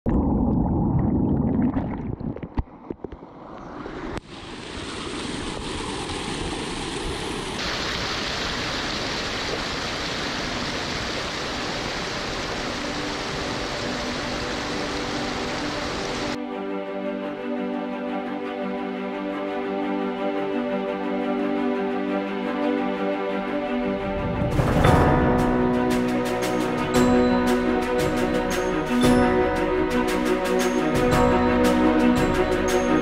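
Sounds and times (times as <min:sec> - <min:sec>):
stream rushing over rocks: 0:04.0 - 0:16.4.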